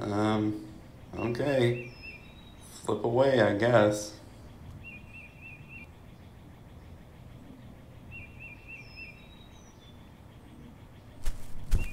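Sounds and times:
bird chirps: 0:00.0 - 0:11.9
low background noise: 0:00.0 - 0:11.9
thin high bird whistles: 0:11.2 - 0:11.9.

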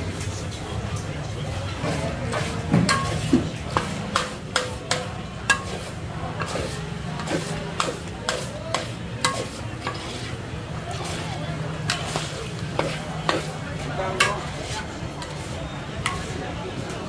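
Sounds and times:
frying sizzle: 0:01.8 - 0:17.0
metal spatula clanking on wok: 0:02.3 - 0:10.3, 0:11.0 - 0:16.4.

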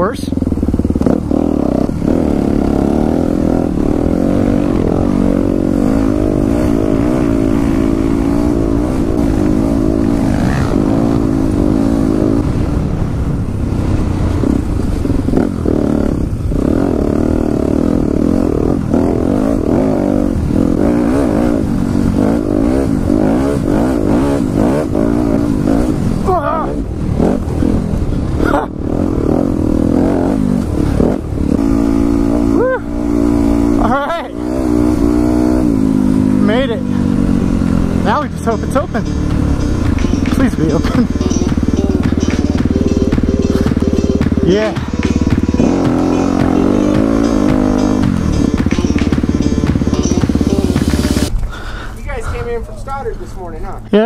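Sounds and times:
wind rushing over microphone: 0:00.0 - 0:38.1
dirt bike engine revving: 0:00.0 - 0:51.4.

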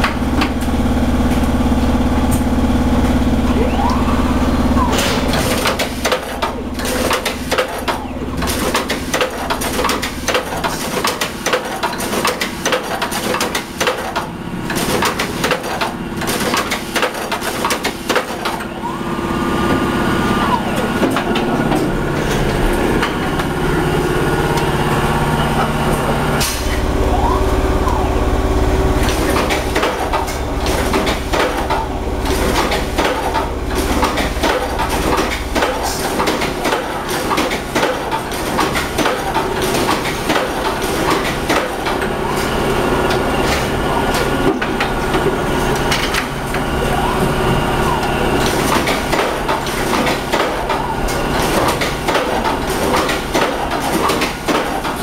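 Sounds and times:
deep machine rumble: 0:00.0 - 0:08.8, 0:18.8 - 0:36.3
machine hum: 0:00.0 - 0:55.0.

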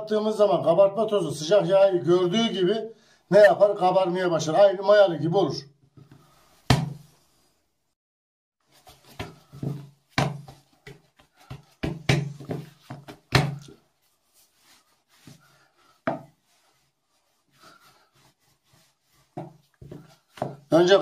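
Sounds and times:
hands slapping dough: 0:06.0 - 0:07.1, 0:08.7 - 0:13.8, 0:14.6 - 0:16.6, 0:17.6 - 0:21.0.

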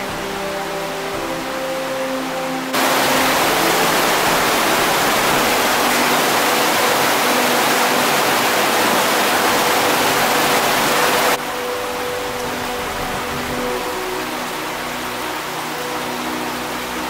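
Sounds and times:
waterfall rushing water: 0:00.0 - 0:17.0.

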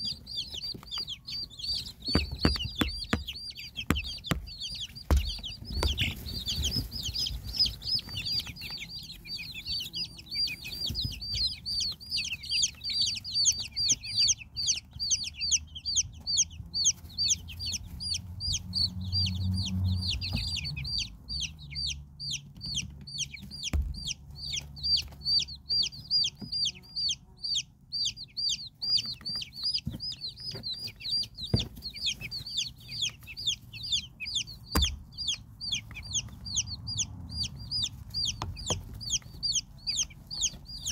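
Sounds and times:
baby chicks peeping: 0:00.0 - 0:40.9
soft knocks: 0:01.6 - 0:07.6.

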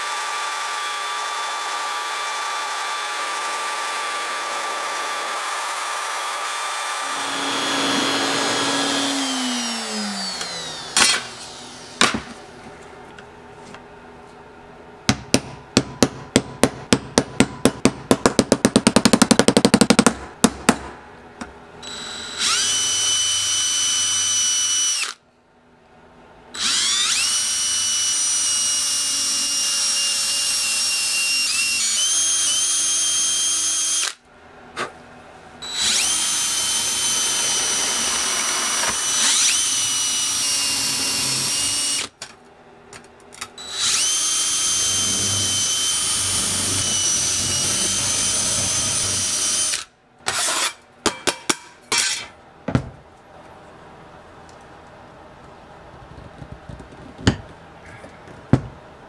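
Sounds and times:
power drill boring through metal: 0:00.0 - 0:12.0, 0:21.8 - 0:25.2, 0:26.6 - 0:34.2, 0:35.6 - 0:42.2, 0:43.6 - 0:50.8.

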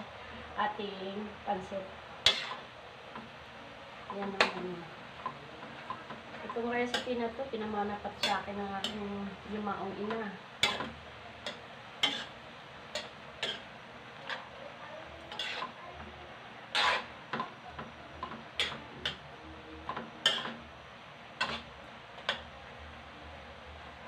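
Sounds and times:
spatula scraping a metal wok: 0:02.2 - 0:02.7, 0:08.0 - 0:09.1, 0:10.6 - 0:14.6, 0:15.3 - 0:15.8, 0:16.7 - 0:17.4, 0:18.5 - 0:19.2, 0:20.2 - 0:20.6, 0:21.4 - 0:22.4.

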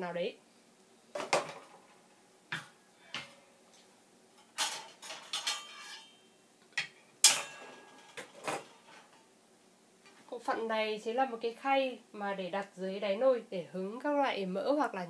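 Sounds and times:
metal accessories clinking and knocking: 0:04.4 - 0:06.2.

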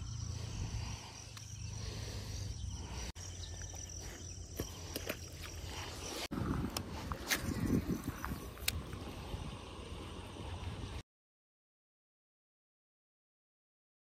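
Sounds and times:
insect buzz: 0:00.0 - 0:11.0.

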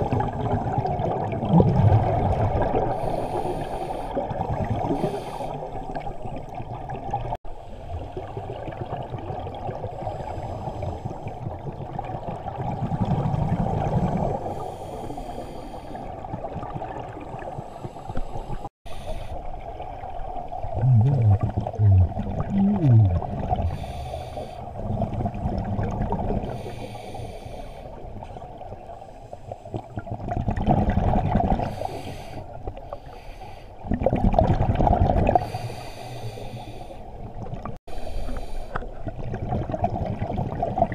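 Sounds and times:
exhaled bubbles rushing: 0:00.0 - 0:03.0, 0:11.0 - 0:14.5, 0:16.2 - 0:17.7, 0:19.8 - 0:24.1, 0:24.8 - 0:26.6, 0:29.8 - 0:31.7, 0:33.8 - 0:35.5, 0:38.9 - 0:40.9
diver inhaling through regulator: 0:02.9 - 0:04.2, 0:14.4 - 0:16.2, 0:20.8 - 0:24.8, 0:26.4 - 0:28.0, 0:31.6 - 0:33.8, 0:35.4 - 0:37.1, 0:37.9 - 0:39.1.

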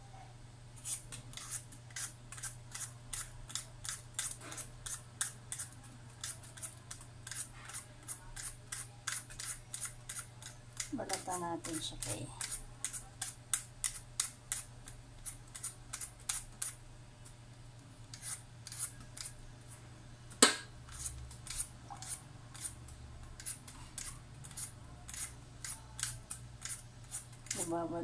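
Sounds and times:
peeler scraping potato: 0:00.8 - 0:16.8, 0:18.0 - 0:19.4, 0:20.8 - 0:28.0.

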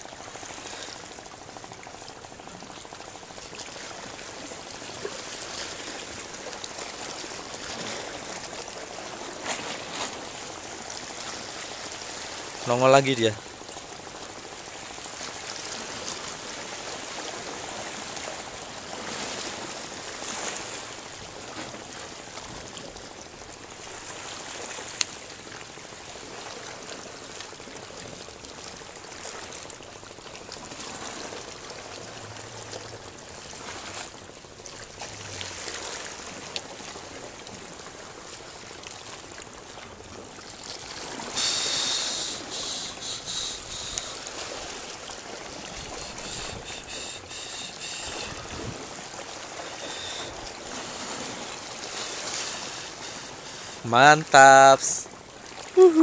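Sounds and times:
small waves lapping against rocks: 0:00.0 - 0:55.8
high pulsing hiss: 0:41.2 - 0:44.8, 0:45.6 - 0:48.6, 0:49.5 - 0:55.0.

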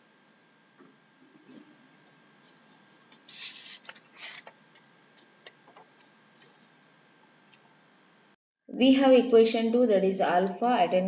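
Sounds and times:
stylus scratching on tablet screen: 0:02.4 - 0:04.4.

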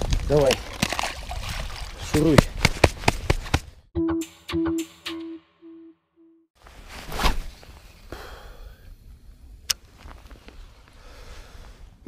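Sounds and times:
echoing held tone: 0:04.0 - 0:06.5.

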